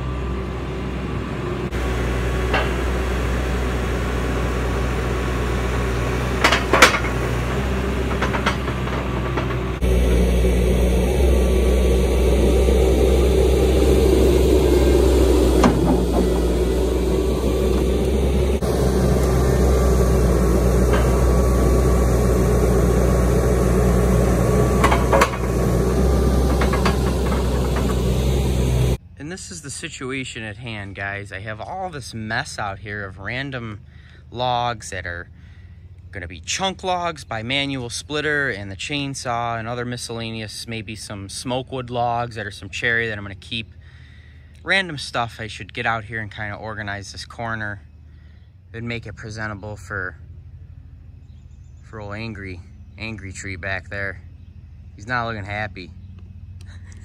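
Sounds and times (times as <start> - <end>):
diesel engine running: 0.0 - 57.0
sharp metal clanks: 2.5 - 3.0, 6.3 - 9.8, 24.4 - 28.3.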